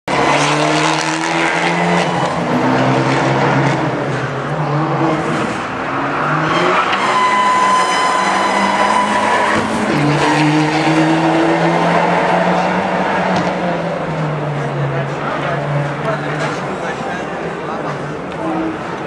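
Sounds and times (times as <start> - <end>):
car engine revving: 0.1 - 19.0
high-pitched squeal: 6.2 - 12.7.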